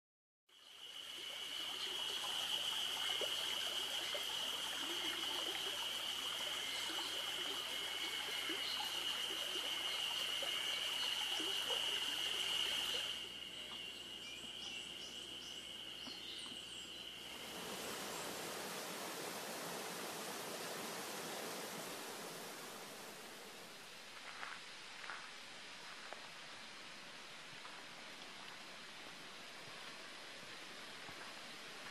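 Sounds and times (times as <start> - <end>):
trickling water: 0.5 - 13.8, 15.8 - 23.9.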